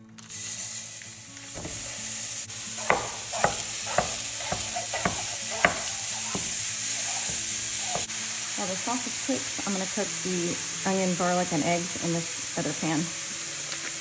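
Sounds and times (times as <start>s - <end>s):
sausage sizzling in a frying pan: 0.0s - 14.0s
utensil knocking against pan: 1.6s - 1.9s, 2.8s - 8.1s.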